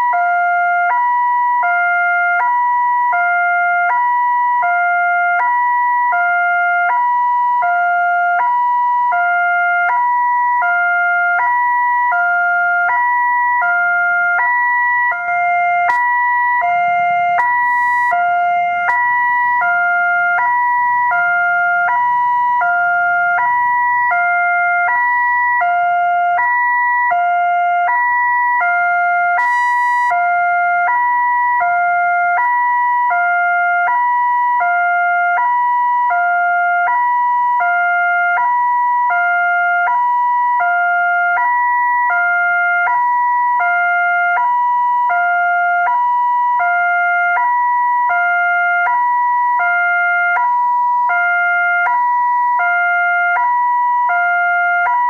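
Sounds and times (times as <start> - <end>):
two-tone crossing alarm: 0.0 - 55.0.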